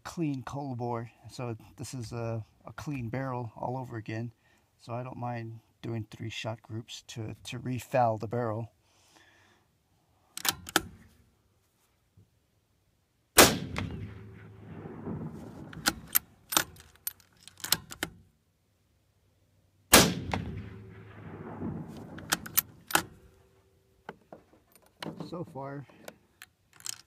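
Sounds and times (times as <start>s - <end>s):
rifle bolt metallic clicks: 10.4s - 11.0s, 13.6s - 18.2s, 20.0s - 23.4s, 26.0s - 27.0s
rifle shots: 13.4s - 16.7s, 19.9s - 23.3s.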